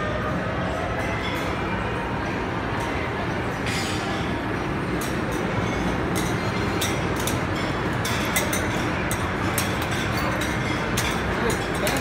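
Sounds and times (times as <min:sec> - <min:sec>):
restaurant crowd din: 0:00.0 - 0:12.0
plates and utensils clinking: 0:02.8 - 0:12.0.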